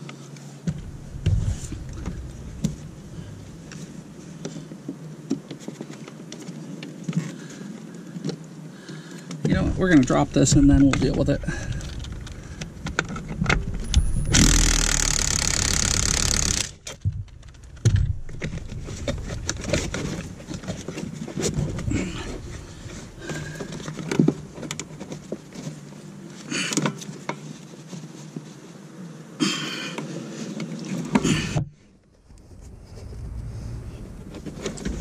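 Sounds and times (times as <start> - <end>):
loud hissing rush: 0.7 - 4.5, 9.8 - 16.8, 21.4 - 24.9.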